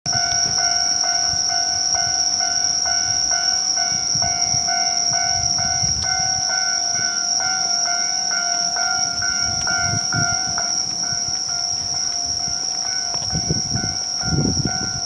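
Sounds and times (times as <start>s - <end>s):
level-crossing warning bell ringing: 0.0s - 15.0s.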